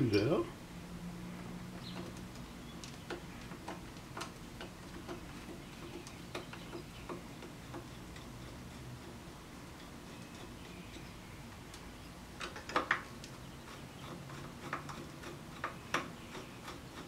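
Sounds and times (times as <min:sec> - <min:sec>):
screwdriver clicking on screws: 0:01.9 - 0:09.2.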